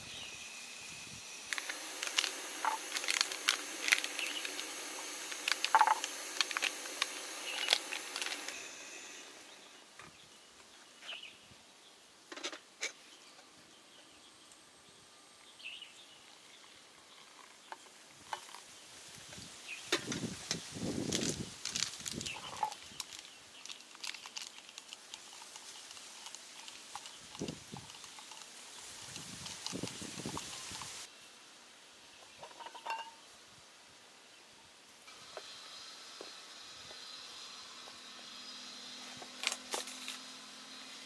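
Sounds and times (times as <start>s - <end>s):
gas stove hissing and crackling: 0.0s - 10.0s, 18.4s - 31.1s, 35.0s - 41.0s.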